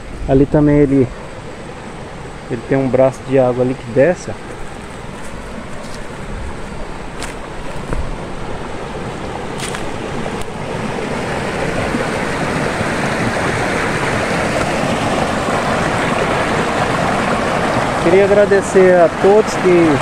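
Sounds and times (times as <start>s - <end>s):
stream rushing over rocks: 4.1s - 20.0s.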